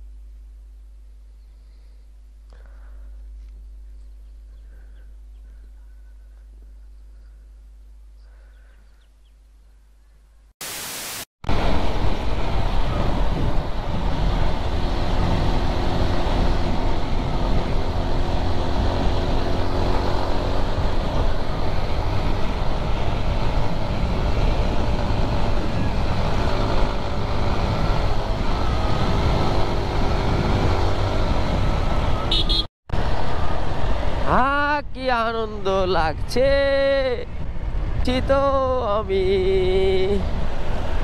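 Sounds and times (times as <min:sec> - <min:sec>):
wind noise on microphone: 0:11.5 - 0:32.6, 0:33.9 - 0:41.0
motorcycle engine running: 0:11.8 - 0:33.6.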